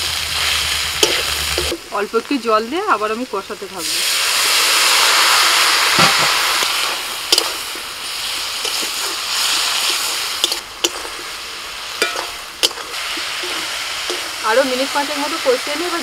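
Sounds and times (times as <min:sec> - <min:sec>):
food sizzling while stirred: 0:00.0 - 0:16.0
water hissing in hot oil: 0:00.0 - 0:16.0
spatula tapping on pan: 0:12.0 - 0:12.8.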